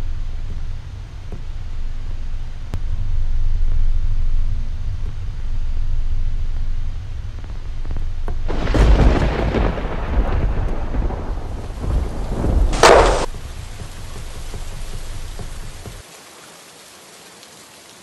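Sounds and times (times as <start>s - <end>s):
low steady rumble: 0.0s - 16.0s
thunder clap rolling: 8.5s - 16.0s.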